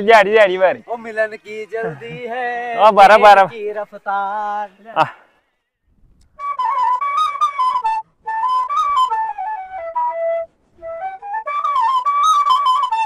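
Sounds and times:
solo flute melody: 0:06.2 - 0:13.0.

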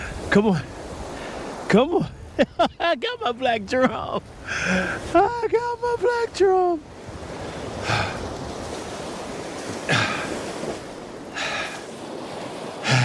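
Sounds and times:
surf breaking on beach: 0:00.0 - 0:13.0
man gasping breaths: 0:04.5 - 0:05.0, 0:07.8 - 0:08.2, 0:09.9 - 0:10.4, 0:11.3 - 0:11.9.

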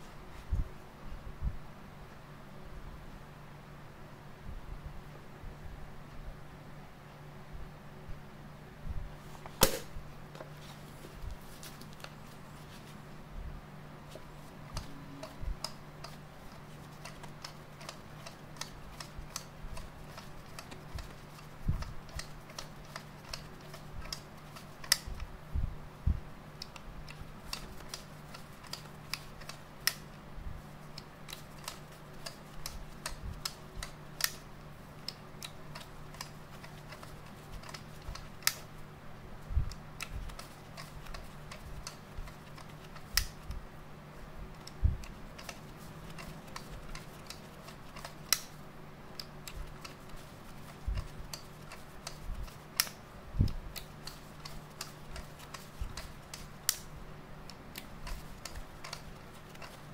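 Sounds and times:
faint low hum: 0:00.0 - 0:59.9
camera knob clicking: 0:57.8 - 0:59.8.

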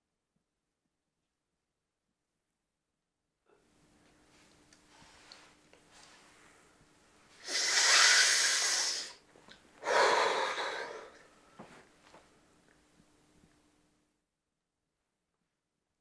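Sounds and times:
faint steady hum: 0:03.5 - 0:14.4
man breathing heavily: 0:09.8 - 0:11.2.

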